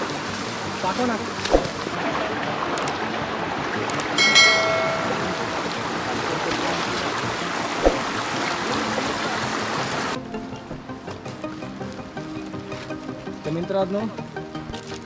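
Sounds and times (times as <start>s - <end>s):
stream water rushing: 0.0s - 10.2s
high-pitched note: 4.2s - 6.0s.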